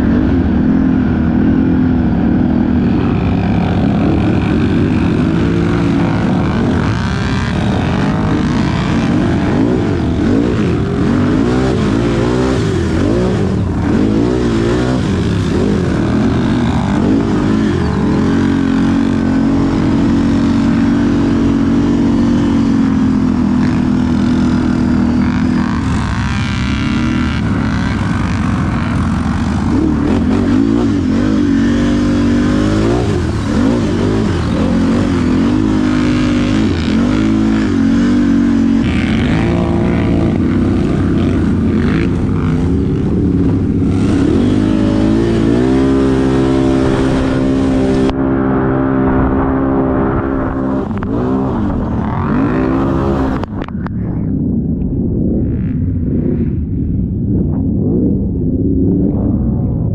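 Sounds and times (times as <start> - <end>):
atv engine revving: 0.0 - 54.0.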